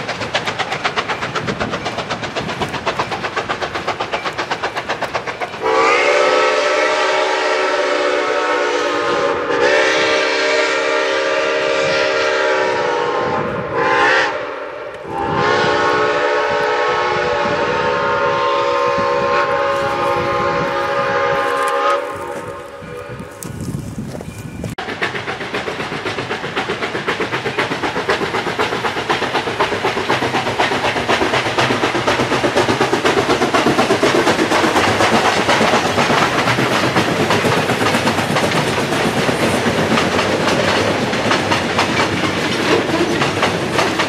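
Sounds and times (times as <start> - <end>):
steam locomotive exhaust beat: 0.0 - 44.0
steam whistle blasts: 5.6 - 23.3.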